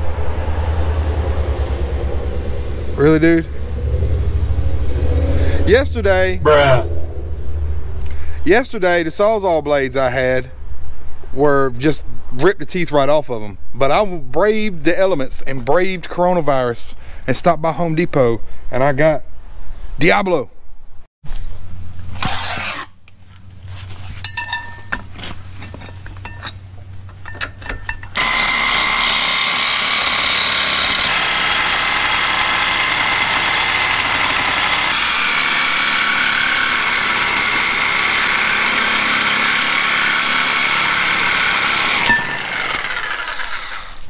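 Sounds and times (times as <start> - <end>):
reciprocating saw cutting steel: 22.2 - 23.0, 27.9 - 44.0.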